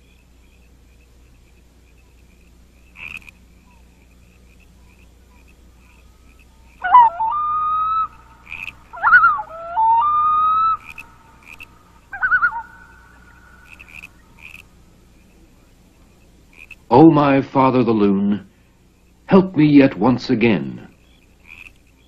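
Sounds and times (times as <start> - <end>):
high frog peeps: 0.0 - 22.0
loon-like cries: 5.3 - 14.9.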